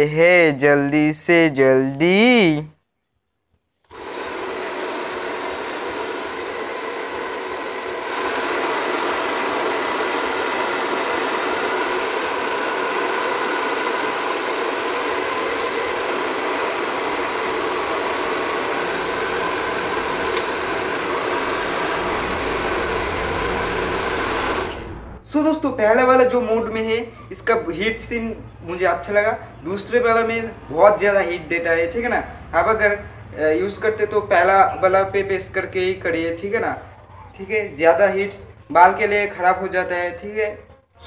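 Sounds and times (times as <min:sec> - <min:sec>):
hair dryer running: 0:03.9 - 0:25.2.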